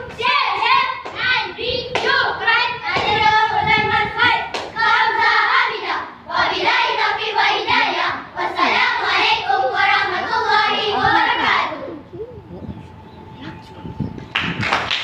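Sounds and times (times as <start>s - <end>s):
children chanting in unison: 0.0s - 11.8s.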